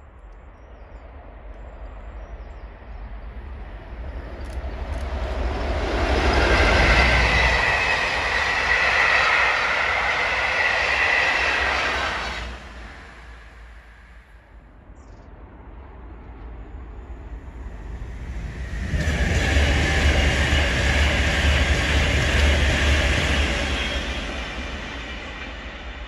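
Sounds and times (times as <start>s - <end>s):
diesel locomotive rumbling past: 2.8s - 14.7s, 16.0s - 26.0s.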